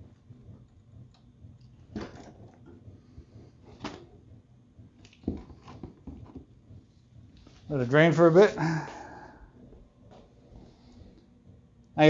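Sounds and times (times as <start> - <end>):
faint knocks and clicks: 0.0 - 7.7.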